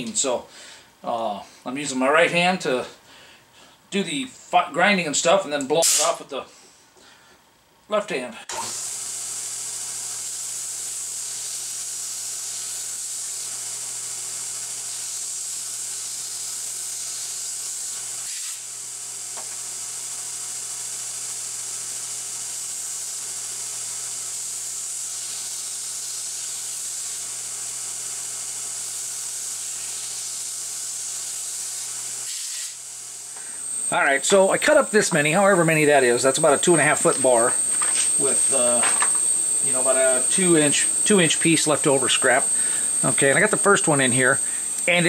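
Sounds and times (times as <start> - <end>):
belt grinder grinding metal: 8.5 - 18.7, 23.8 - 45.0.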